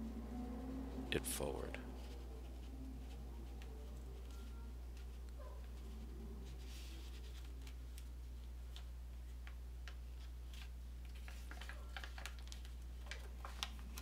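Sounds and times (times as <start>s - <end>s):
steady low hum: 0.0s - 11.1s
paper crinkling and rustling: 1.9s - 14.0s.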